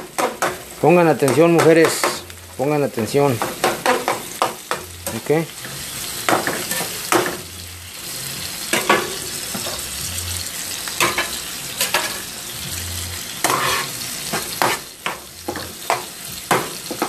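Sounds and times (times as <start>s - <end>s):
food sizzling in frying pan: 0.0s - 17.0s
spatula scraping pan: 3.3s - 7.4s, 8.0s - 17.0s.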